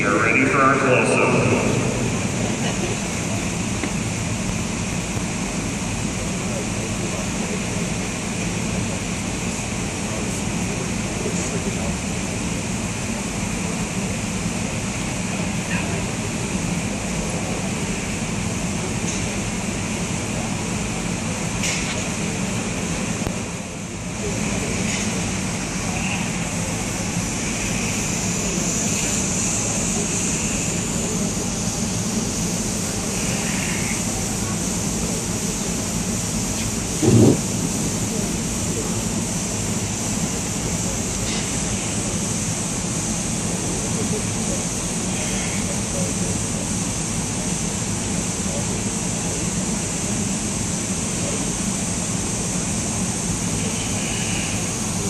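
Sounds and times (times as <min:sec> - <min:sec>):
indoor arena roar: 0:00.0 - 0:04.6
indoor arena rushing noise: 0:00.0 - 0:55.0.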